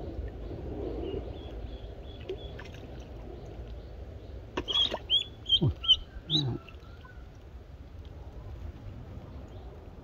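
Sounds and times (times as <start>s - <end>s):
duckling peeping: 4.7s - 7.1s.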